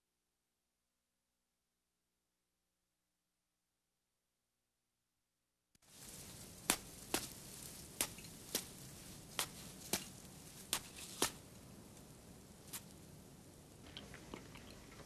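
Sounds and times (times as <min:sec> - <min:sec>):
faint steady hiss: 0:05.8 - 0:15.0.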